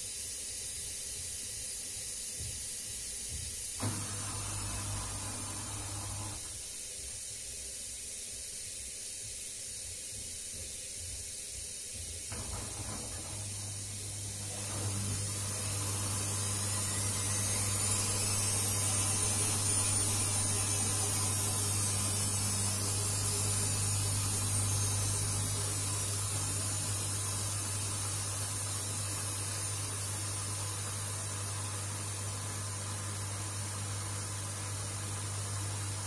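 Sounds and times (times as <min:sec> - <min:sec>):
washing machine motor hum: 0:03.8 - 0:06.7, 0:12.3 - 0:36.0
water hissing: 0:03.8 - 0:06.7, 0:12.4 - 0:30.9.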